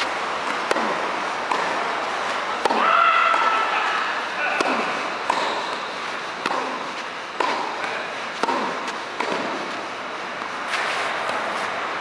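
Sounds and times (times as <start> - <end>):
tennis racket hits: 0.0 - 3.9, 4.5 - 9.8
tennis ball bouncing: 0.0 - 10.5.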